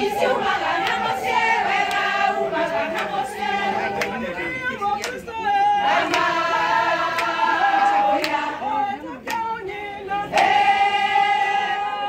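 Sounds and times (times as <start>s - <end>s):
women singing in unison: 0.0s - 12.0s
hand claps: 0.1s - 8.6s, 9.2s - 9.6s, 10.2s - 10.7s.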